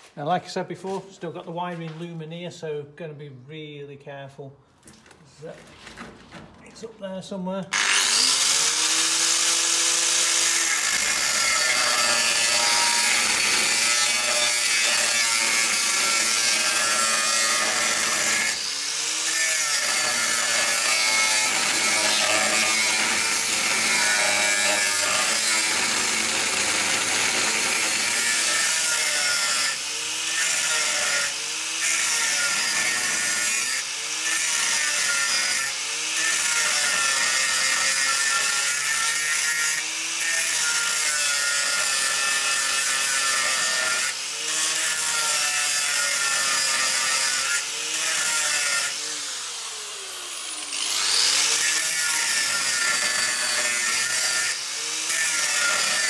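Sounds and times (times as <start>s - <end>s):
angle grinder cutting steel: 7.7s - 56.0s.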